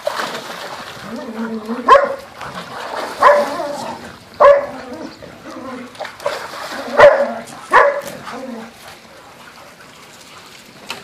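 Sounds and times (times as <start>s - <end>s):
water splashing: 0.0s - 11.0s
dog barking: 1.9s - 2.2s, 3.2s - 3.5s, 4.4s - 4.8s, 7.0s - 8.1s.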